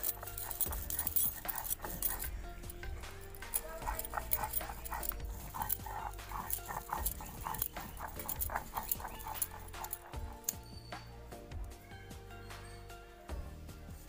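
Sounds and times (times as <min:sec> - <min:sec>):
stone grinding seeds: 0:00.0 - 0:10.7.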